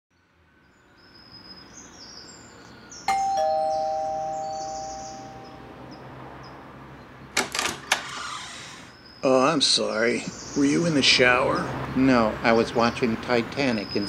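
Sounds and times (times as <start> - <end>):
faint high chirping: 0.8 - 6.1
two-tone doorbell chime: 3.1 - 5.9.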